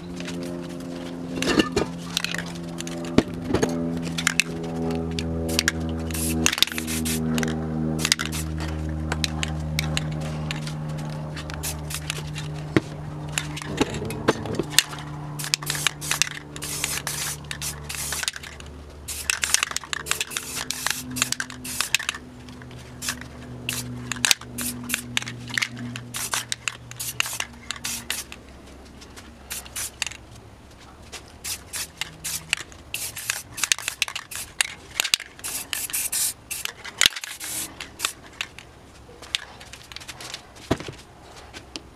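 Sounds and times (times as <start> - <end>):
spray paint can hissing: 5.5 - 8.6, 11.5 - 12.5, 14.8 - 22.2, 22.9 - 28.4, 29.5 - 30.2, 31.4 - 38.3.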